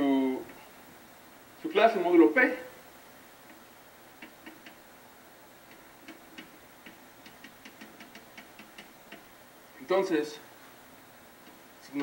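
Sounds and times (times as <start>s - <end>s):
chalk tapping on blackboard: 4.2s - 4.8s, 5.7s - 9.3s.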